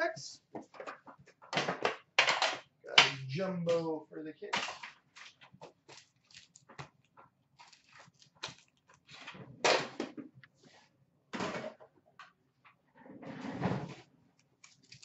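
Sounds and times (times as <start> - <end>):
card packs rustling: 4.4 - 9.4.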